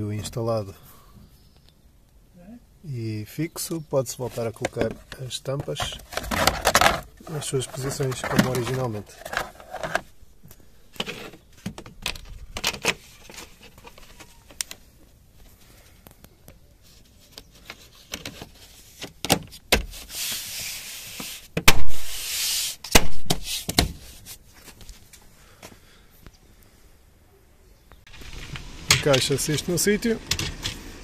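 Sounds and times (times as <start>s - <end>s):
plastic rubbing scrape: 4.2s - 10.1s.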